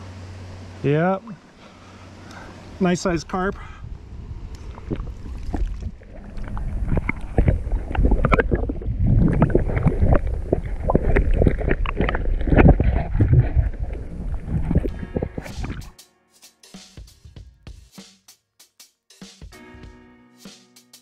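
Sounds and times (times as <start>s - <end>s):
water sloshing underwater: 4.2s - 15.9s
underwater knocks and gurgles: 4.6s - 15.9s.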